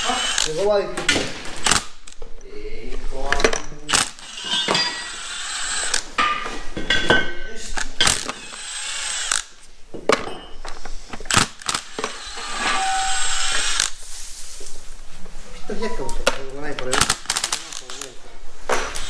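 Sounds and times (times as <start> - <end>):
cordless drill spinning bolts: 0.0 - 0.6, 3.9 - 6.1, 8.0 - 9.6, 11.2 - 14.0, 16.9 - 19.0
metal parts clicking: 3.3 - 6.2, 7.7 - 9.6, 16.2 - 19.0.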